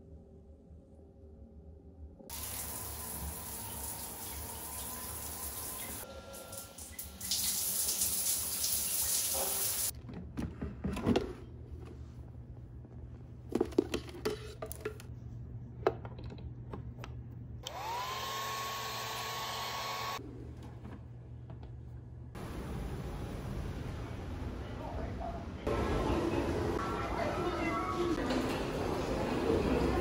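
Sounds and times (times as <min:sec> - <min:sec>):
running water: 0:02.3 - 0:09.9
hair dryer motor whine: 0:17.6 - 0:20.2.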